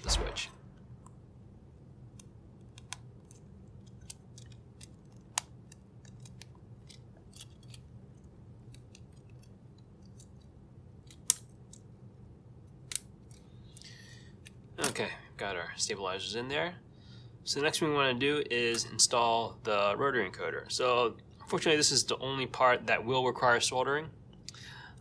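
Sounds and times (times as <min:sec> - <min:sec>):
plastic clicks and snaps: 0:02.1 - 0:11.9.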